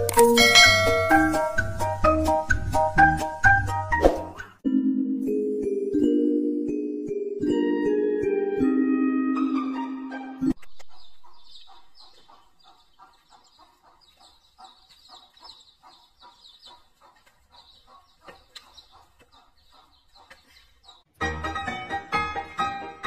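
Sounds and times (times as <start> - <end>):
music: 0.0 - 10.6, 21.1 - 23.0
ducklings peeping: 10.6 - 21.1.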